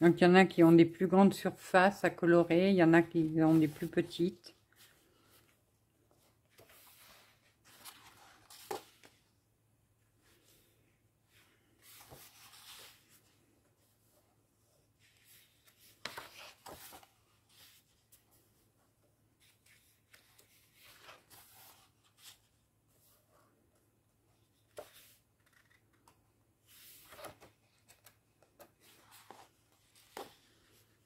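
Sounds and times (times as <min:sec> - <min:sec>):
paper pages rustling: 0:03.2 - 0:05.6, 0:06.2 - 0:09.2, 0:11.6 - 0:13.3, 0:15.0 - 0:18.2, 0:19.4 - 0:22.6, 0:24.6 - 0:31.0.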